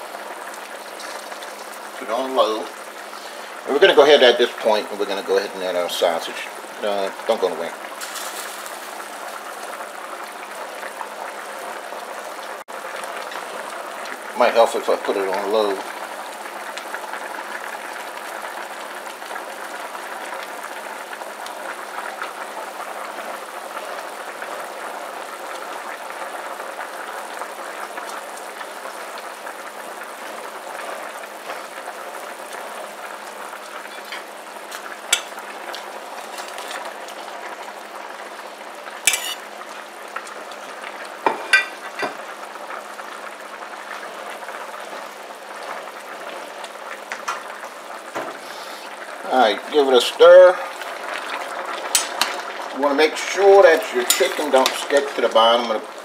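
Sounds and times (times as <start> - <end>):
pot boiling on a stove: 0.0 - 56.0
sharp clinks in a pot: 35.2 - 35.4, 39.1 - 39.4.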